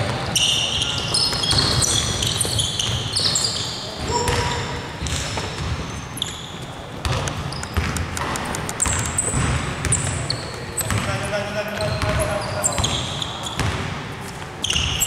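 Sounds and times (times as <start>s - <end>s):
sneakers squeaking: 0.0s - 15.0s
basketball dribbling on hardwood: 7.0s - 10.2s, 10.8s - 11.2s.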